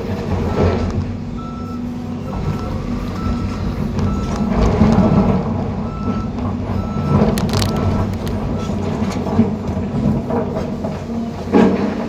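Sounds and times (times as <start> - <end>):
excavator diesel engine running: 0.0 - 12.0
reversing alarm beeps: 1.4 - 8.8.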